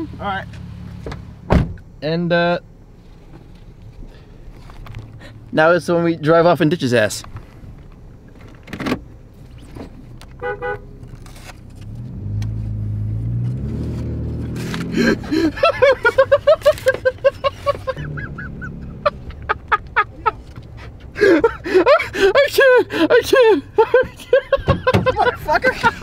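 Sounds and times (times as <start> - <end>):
car horn tooting: 10.4 - 11.0
car engine revving: 11.0 - 20.6.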